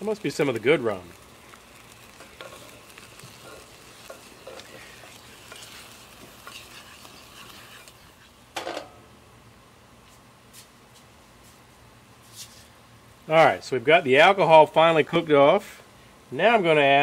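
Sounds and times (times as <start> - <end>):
glaze bubbling and sizzling: 0.0 - 9.2
spoon scraping a saucepan: 3.3 - 8.3.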